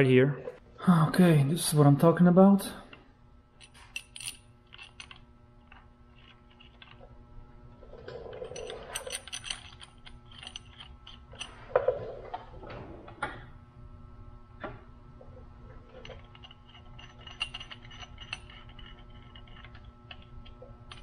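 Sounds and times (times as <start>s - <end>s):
metallic clicks and clinks: 8.3s - 11.6s, 16.0s - 21.0s.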